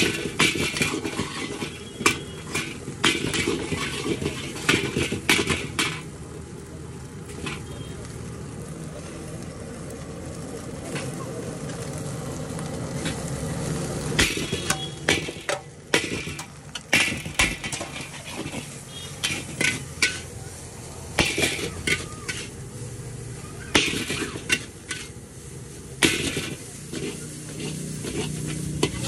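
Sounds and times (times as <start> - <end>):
wok frying sizzle: 0.0 - 29.0
metal spatula clanging on wok: 14.2 - 20.4, 26.0 - 29.0.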